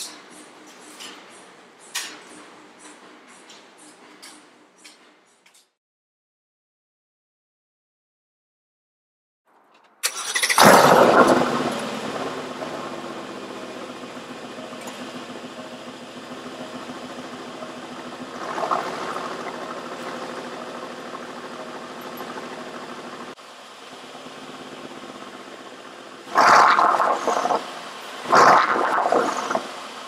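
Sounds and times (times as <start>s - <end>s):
starter motor cranking: 10.0s - 23.4s
car engine revving and idling: 10.2s - 30.0s.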